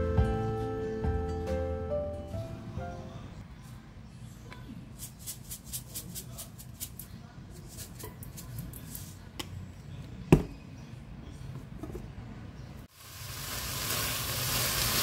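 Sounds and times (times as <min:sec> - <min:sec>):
seeds rattling in plastic shaker: 0:04.9 - 0:07.1.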